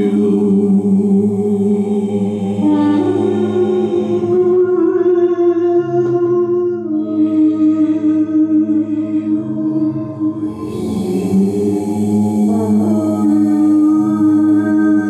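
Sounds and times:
voices singing wordless chant: 0:00.0 - 0:15.0
low sustained note: 0:07.0 - 0:15.0.

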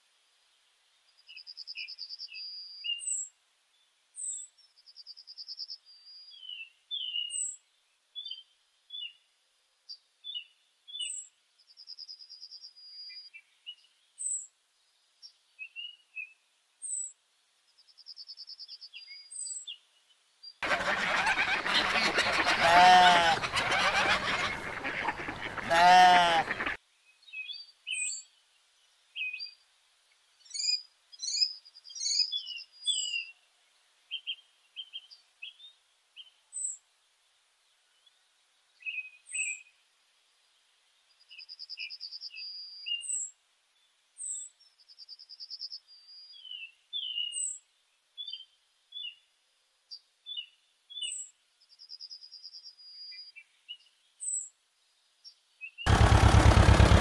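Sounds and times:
small birds chirping: 0:00.5 - 0:09.3, 0:09.9 - 0:36.8, 0:37.7 - 0:56.0
rapid bird trill: 0:20.6 - 0:26.8.

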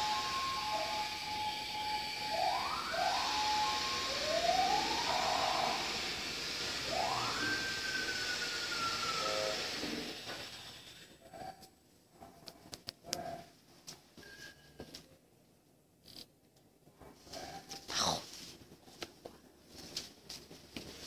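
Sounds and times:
electronic siren tones: 0:00.0 - 0:10.2
steady hiss: 0:00.0 - 0:11.2.

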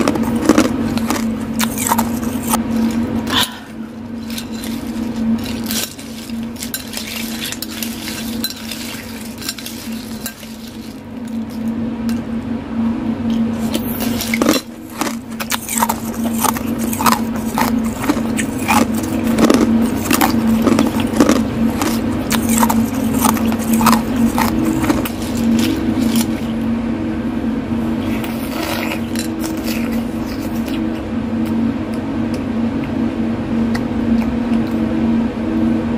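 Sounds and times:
steady low hum: 0:00.0 - 0:35.9
ice clinking against spoon and bowl: 0:04.2 - 0:11.0.

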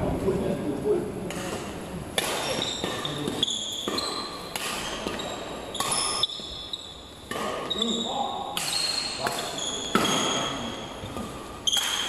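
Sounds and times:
racket striking shuttlecock: 0:01.3 - 0:06.5, 0:08.6 - 0:12.0
shoes squeaking on hall floor: 0:02.2 - 0:12.0.

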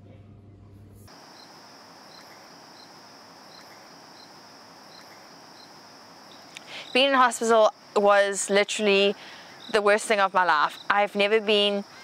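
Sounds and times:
short cricket chirp: 0:01.1 - 0:08.0
crickets trilling: 0:01.1 - 0:12.0.

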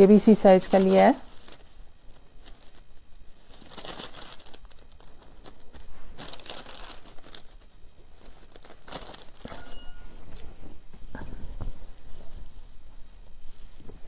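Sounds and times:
paper rustling and crinkling: 0:00.0 - 0:09.8.

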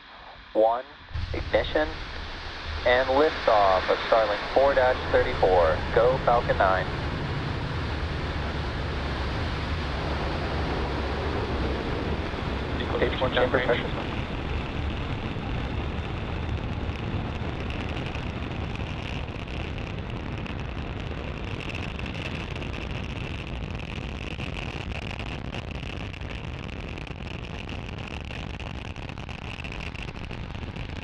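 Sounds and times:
rocket engines rumbling: 0:00.0 - 0:27.2.

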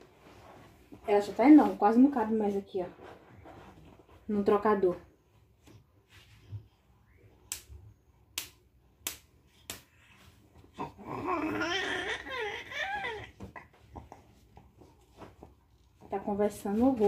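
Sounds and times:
baby cooing and babbling: 0:10.7 - 0:14.1.

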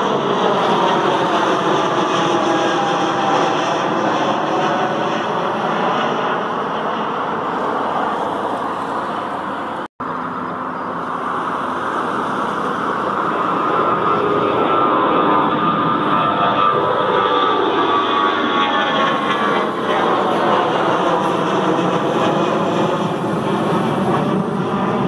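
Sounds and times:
airliner engine noise: 0:00.0 - 0:25.0.

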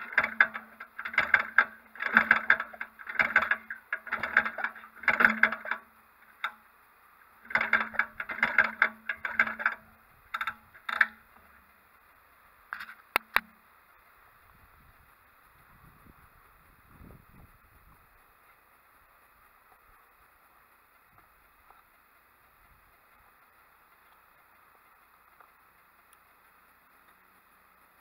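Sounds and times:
engine firing in sputtering bursts: 0:00.0 - 0:06.6.

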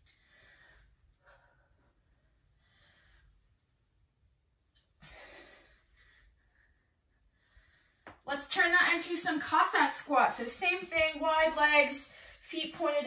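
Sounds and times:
faint breathing: 0:00.0 - 0:03.6, 0:05.0 - 0:08.1, 0:12.1 - 0:12.5.

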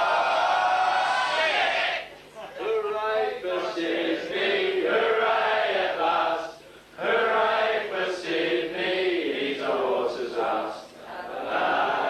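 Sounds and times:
group of people singing: 0:03.4 - 0:12.0.

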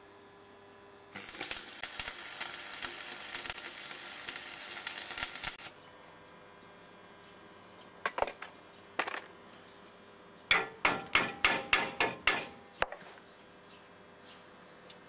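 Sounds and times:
hammer striking metal: 0:10.5 - 0:12.7.

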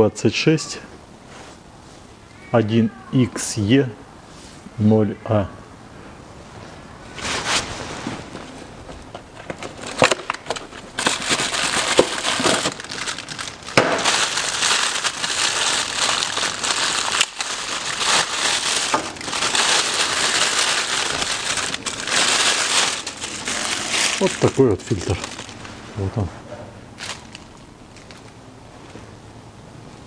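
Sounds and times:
plastic bag crinkling: 0:09.3 - 0:25.8, 0:27.0 - 0:28.3.

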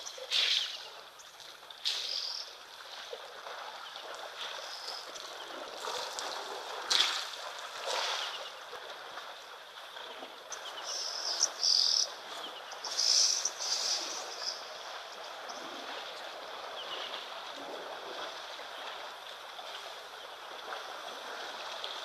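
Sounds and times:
water sloshing and splashing: 0:00.0 - 0:22.0
birds chirping: 0:10.5 - 0:15.6.

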